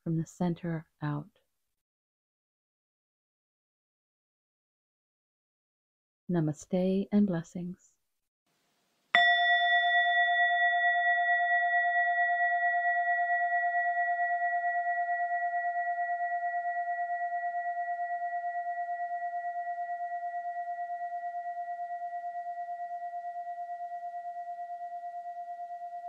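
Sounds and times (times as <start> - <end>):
meditation bell ringing: 9.2 - 26.0.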